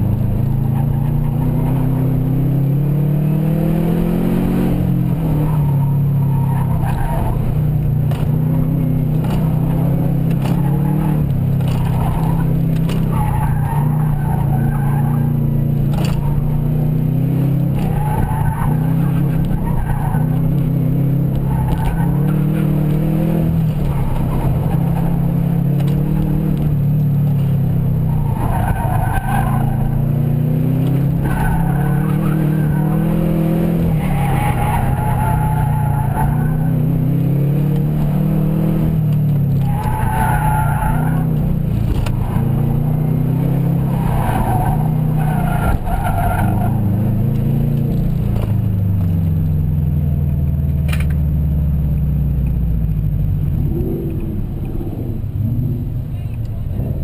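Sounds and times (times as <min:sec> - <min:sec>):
car engine revving: 0:00.0 - 0:57.0
tyres squealing: 0:39.5 - 0:41.4.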